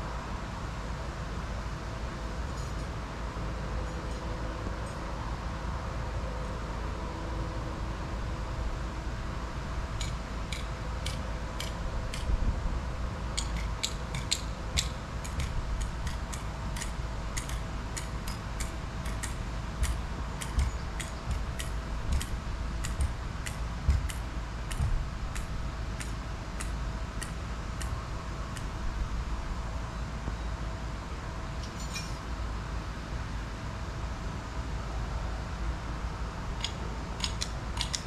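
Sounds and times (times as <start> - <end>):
sharp irregular clicks: 10.0 - 12.4, 13.4 - 28.0, 36.6 - 38.0.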